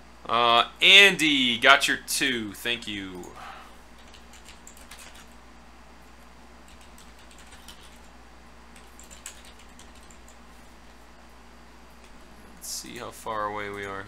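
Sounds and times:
low steady hum: 0:00.0 - 0:14.0
keyboard typing: 0:04.0 - 0:05.4, 0:06.7 - 0:08.1, 0:08.8 - 0:10.4.

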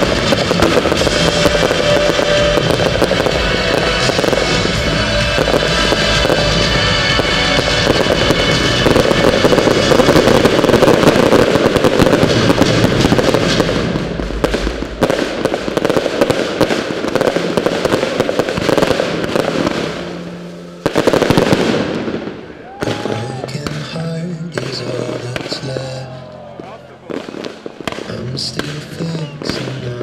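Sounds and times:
fireworks crackling and popping: 0:00.0 - 0:30.0
music playing: 0:00.0 - 0:30.0.

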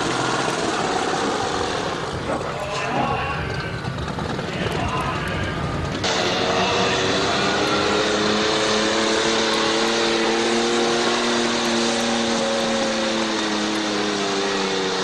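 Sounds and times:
tractor engine under heavy load: 0:00.0 - 0:15.0.

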